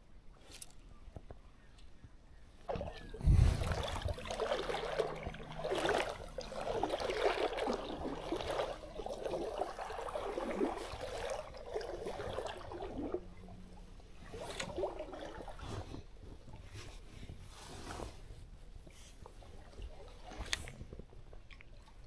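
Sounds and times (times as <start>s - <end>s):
stream water gurgling: 2.7s - 16.5s.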